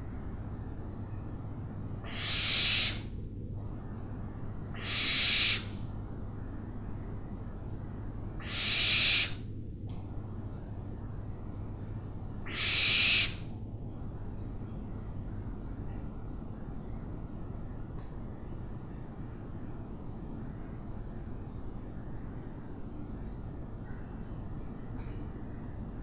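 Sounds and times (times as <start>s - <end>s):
low background hum: 0.0s - 26.0s
owl screeching: 2.0s - 3.1s, 4.7s - 5.8s, 8.4s - 9.4s, 12.4s - 13.5s.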